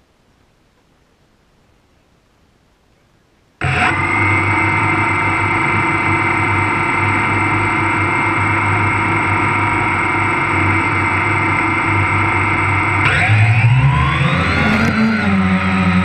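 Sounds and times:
drone motors whining: 0:03.6 - 0:16.0.

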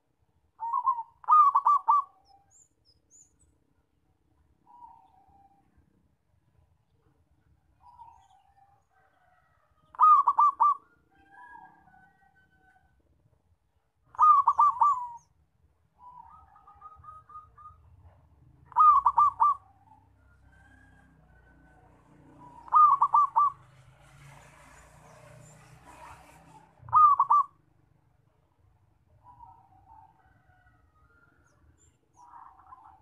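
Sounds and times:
dove cooing: 0:00.6 - 0:02.3, 0:09.9 - 0:11.6, 0:14.1 - 0:15.3, 0:18.6 - 0:20.1, 0:22.2 - 0:23.8, 0:26.8 - 0:27.6.

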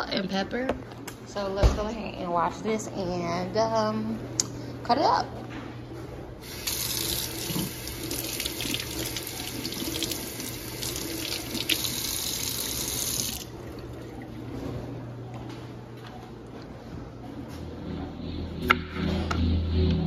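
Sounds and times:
faucet running into metal sink: 0:06.4 - 0:13.9.

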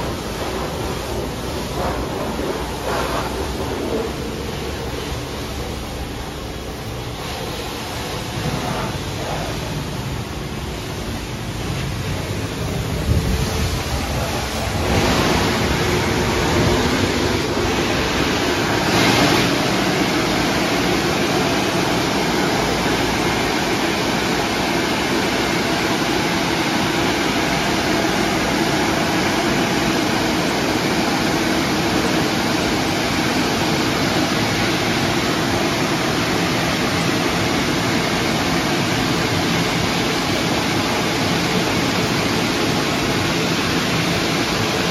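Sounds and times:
car wash brushes scrubbing: 0:00.0 - 0:06.0
water spraying: 0:00.0 - 0:44.9.

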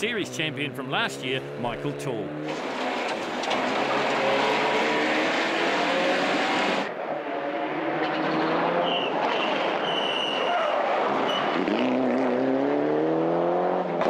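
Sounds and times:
rally car engine at hard throttle: 0:00.0 - 0:14.0
high squeal: 0:08.8 - 0:11.5.

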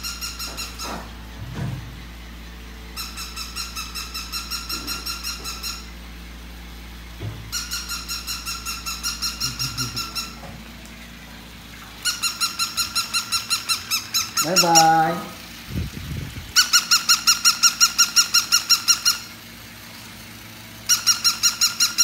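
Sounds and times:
toy dog electronic yips: 0:03.0 - 0:05.9, 0:07.6 - 0:10.4, 0:12.0 - 0:15.0, 0:16.6 - 0:19.3, 0:20.9 - 0:22.0.

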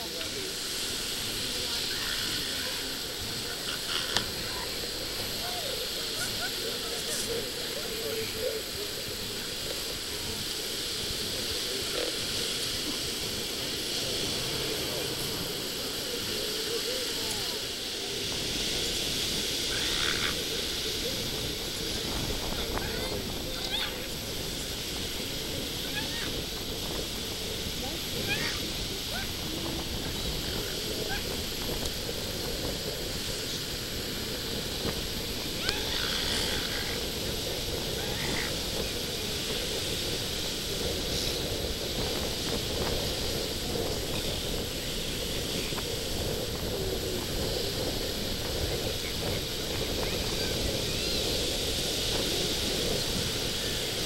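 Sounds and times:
surf: 0:00.0 - 0:54.0
wind: 0:00.0 - 0:54.0
elephant seals croaking: 0:00.6 - 0:17.7, 0:18.3 - 0:24.8, 0:28.0 - 0:31.4, 0:34.8 - 0:39.7
faint high animal calls: 0:19.7 - 0:20.4, 0:28.2 - 0:29.3, 0:35.6 - 0:37.0, 0:37.9 - 0:38.6.

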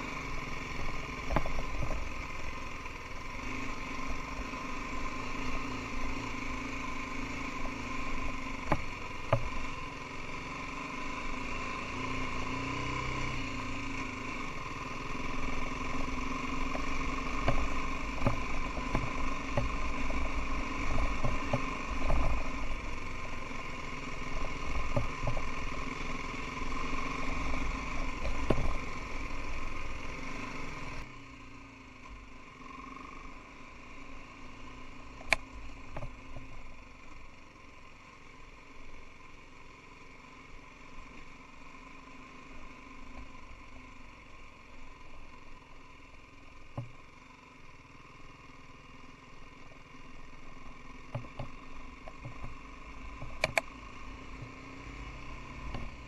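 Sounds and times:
motorcycle engine running: 0:00.0 - 0:56.0
knocks and clicks from bike: 0:01.2 - 0:02.1, 0:07.6 - 0:09.6, 0:16.6 - 0:22.7, 0:24.4 - 0:25.8, 0:27.4 - 0:29.0, 0:35.2 - 0:36.6, 0:46.7 - 0:47.0, 0:51.1 - 0:53.7.

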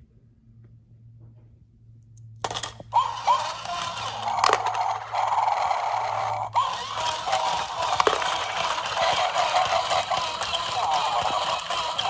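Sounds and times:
toy eating sound effect: 0:02.9 - 0:12.0.

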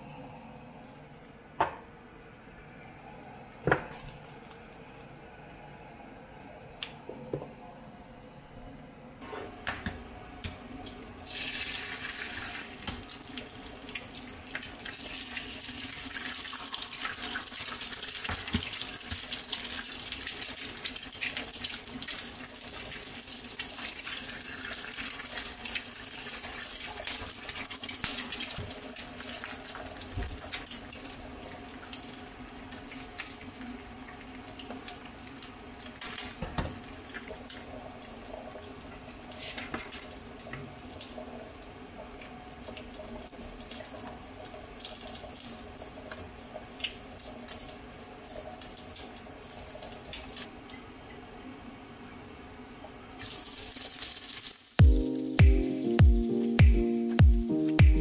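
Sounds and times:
eggs sizzling in oil: 0:11.2 - 0:50.4, 0:53.2 - 0:54.8.

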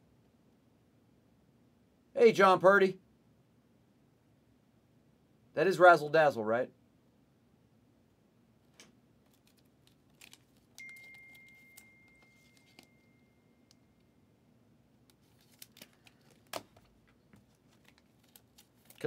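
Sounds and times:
card sliding into plastic sleeve: 0:09.3 - 0:12.9
high tone: 0:10.8 - 0:14.2.

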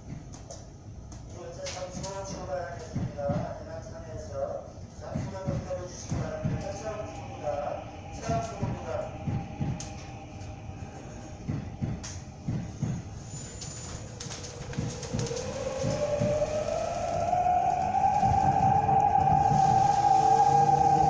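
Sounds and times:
train running gear rumble: 0:01.8 - 0:21.0
electric traction motor whine: 0:06.2 - 0:21.0.

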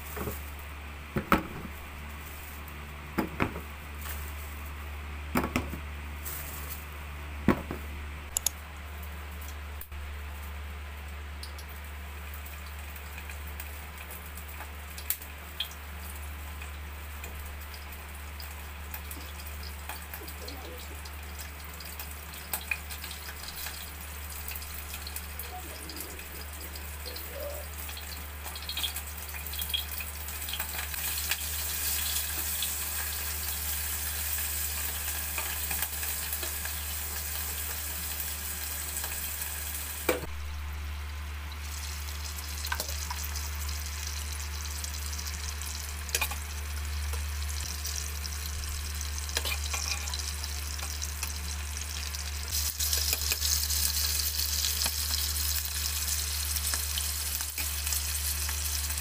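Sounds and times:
fish sizzling in hot oil: 0:12.1 - 0:40.2, 0:41.5 - 0:59.0.

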